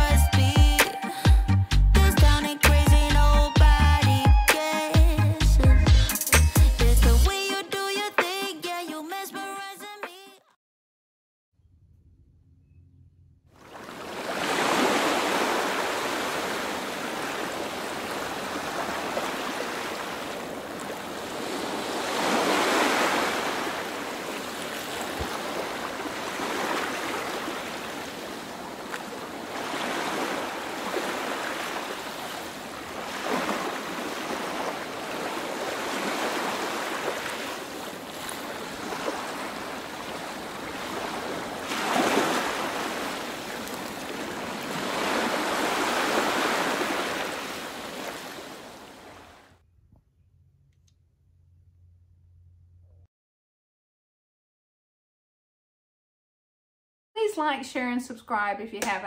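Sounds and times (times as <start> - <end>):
ocean surf waves: 0.0 - 1.5, 13.6 - 49.5.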